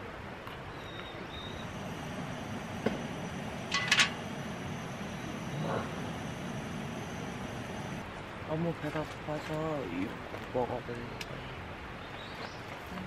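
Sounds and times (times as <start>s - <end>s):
steady hiss: 1.4s - 8.1s.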